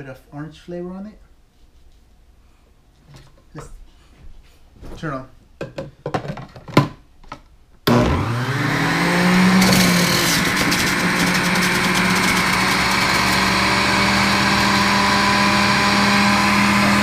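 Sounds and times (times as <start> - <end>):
juicer motor whining: 7.9 - 17.0.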